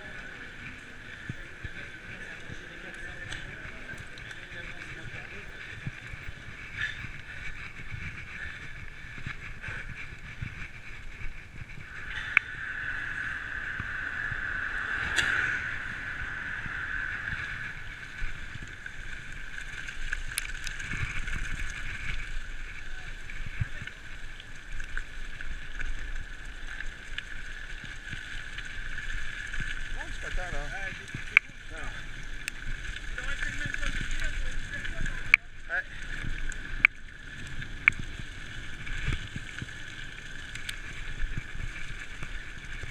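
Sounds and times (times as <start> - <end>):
bike clicking over bumps: 0.0 - 15.3, 16.4 - 42.9
bike tyres rumbling on dirt trail: 0.0 - 42.9
continuous high-pitched whine: 0.0 - 42.9
wind on microphone: 5.0 - 24.2.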